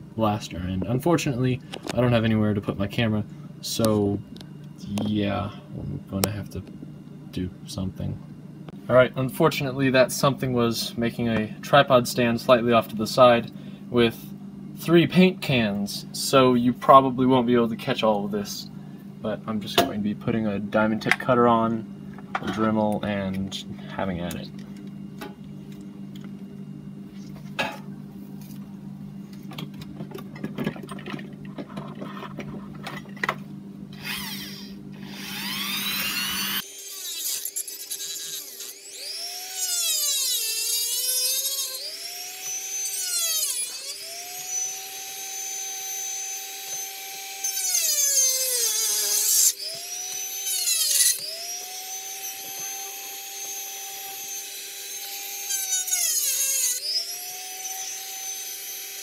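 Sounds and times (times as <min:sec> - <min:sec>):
rotary tool whine cutting plastic: 0:33.9 - 0:59.0.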